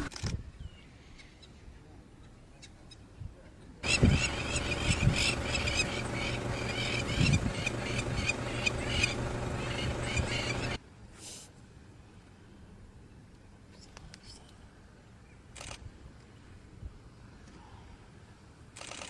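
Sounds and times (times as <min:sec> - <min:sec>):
animals making harsh high calls: 0:03.8 - 0:10.8.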